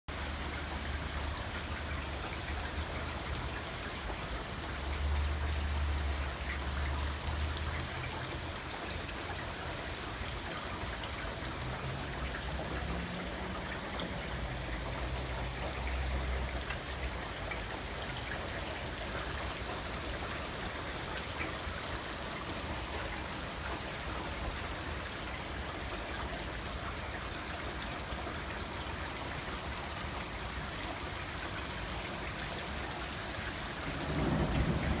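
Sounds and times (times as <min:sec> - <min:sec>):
heavy rain on concrete and pool: 0:00.1 - 0:35.0.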